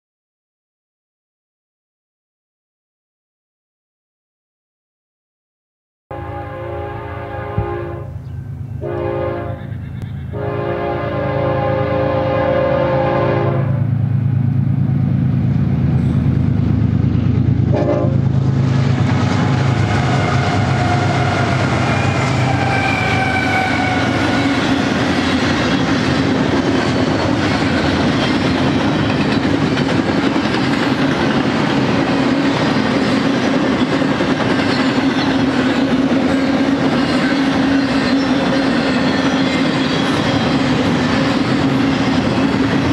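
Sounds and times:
locomotive horn blasts: 6.1s - 13.9s, 17.7s - 18.3s, 19.9s - 24.8s
train wheels clickety-clack: 15.9s - 42.9s.

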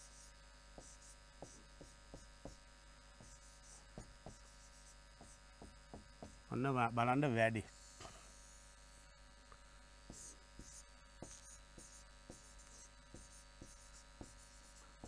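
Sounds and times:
low electrical hum: 0.0s - 15.0s
stylus tapping on display: 3.2s - 4.5s, 5.2s - 6.5s, 10.1s - 14.4s.

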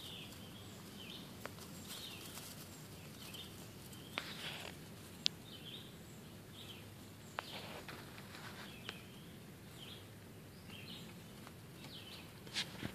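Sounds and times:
animal rustling through dry leaves: 0.0s - 5.2s, 7.4s - 8.9s
distant bird chirps: 0.0s - 12.5s.

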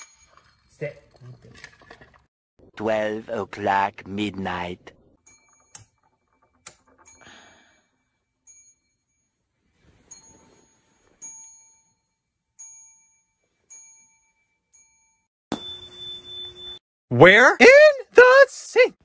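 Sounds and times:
high metallic dings: 5.2s - 9.4s, 10.0s - 16.8s.

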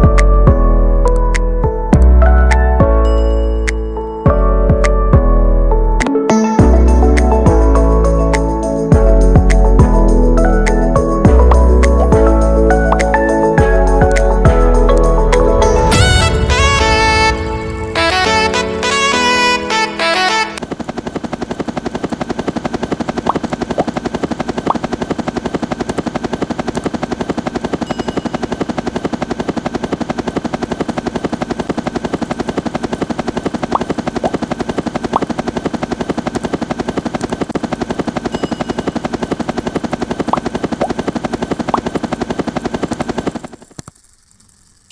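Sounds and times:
toy motors buzzing with gear rattle: 20.2s - 44.9s.

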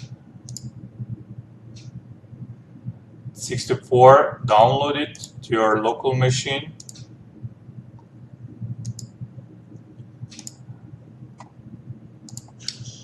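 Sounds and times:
computer mouse clicking: 0.0s - 0.8s, 6.8s - 7.1s, 8.8s - 9.2s, 10.3s - 10.6s, 12.3s - 12.8s
faint low hum: 0.0s - 13.0s.

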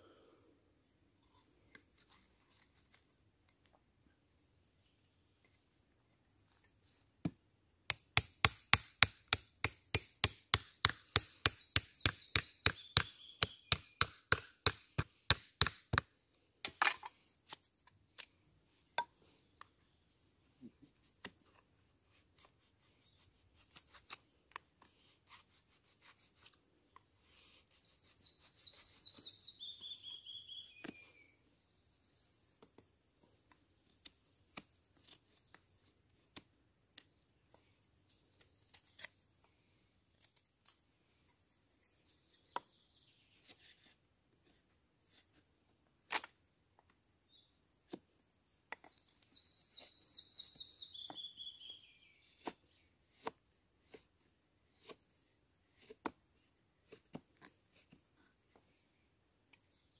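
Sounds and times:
blade chopping wood: 7.9s - 17.1s
light cutting strokes on wood: 20.8s - 29.4s, 52.2s - 58.7s.

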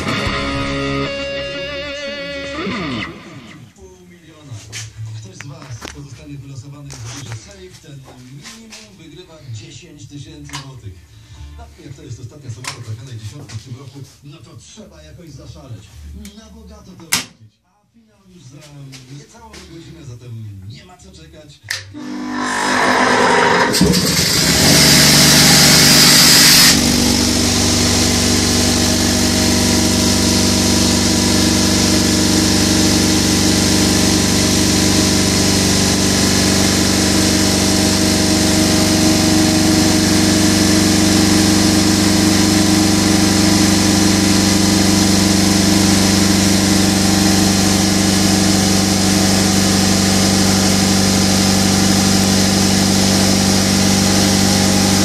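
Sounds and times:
air compressor humming: 0.0s - 1.8s, 22.0s - 55.0s.

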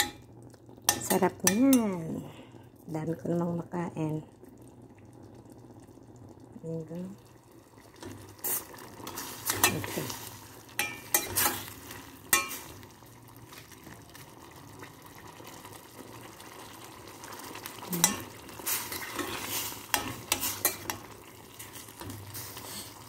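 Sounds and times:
soft sizzle: 0.0s - 23.0s
metal ladle stirring in pot: 8.4s - 12.8s, 17.9s - 22.6s.

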